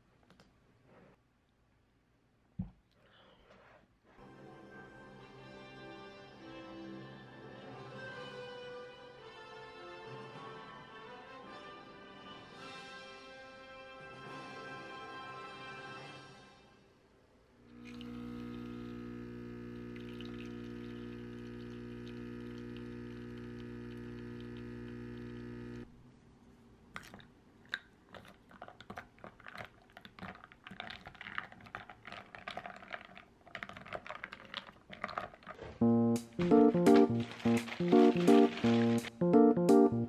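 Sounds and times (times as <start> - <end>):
coffee machine pump humming: 17.7 - 25.9, 35.8 - 39.1
ice cubes clinking in glass: 36.4 - 39.1.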